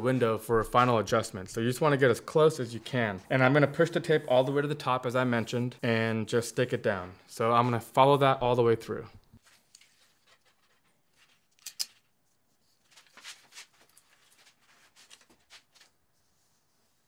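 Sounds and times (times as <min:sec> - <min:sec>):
rustling of tape strip: 0:09.4 - 0:16.0.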